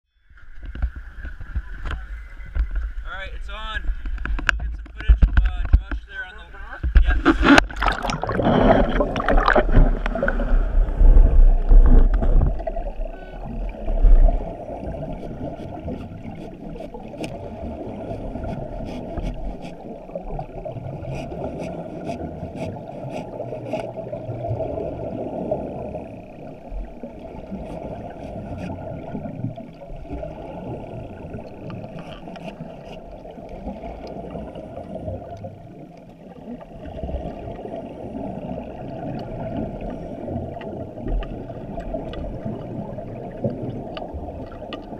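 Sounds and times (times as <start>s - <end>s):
muffled underwater noise: 0.4s - 44.9s
diver's exhaust bubbles gurgling: 6.9s - 44.9s
faint clicks: 30.9s - 34.2s, 43.4s - 44.9s.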